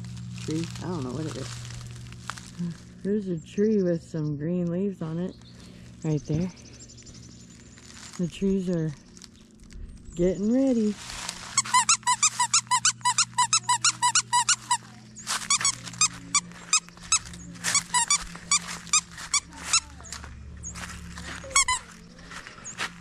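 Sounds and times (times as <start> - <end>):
plush toy squeaker squeaking: 11.6 - 20.2, 21.4 - 22.0.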